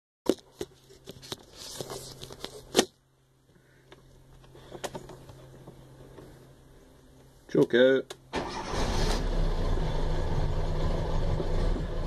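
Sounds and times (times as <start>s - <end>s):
rustling: 0.4s - 2.8s.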